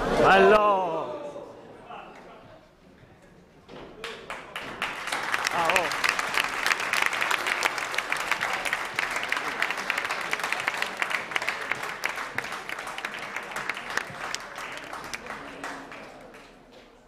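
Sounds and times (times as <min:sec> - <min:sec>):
audience applauding: 0:04.0 - 0:16.7.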